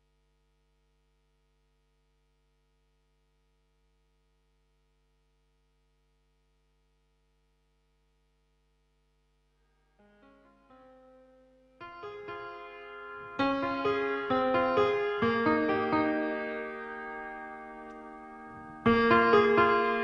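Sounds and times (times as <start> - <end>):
faint steady hum: 0.0 - 14.1.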